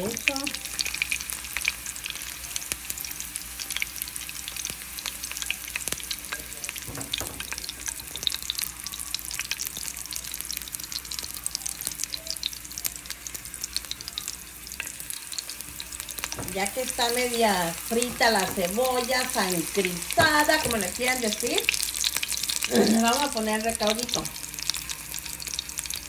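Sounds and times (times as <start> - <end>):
onions sizzling in hot oil: 0.0 - 26.0.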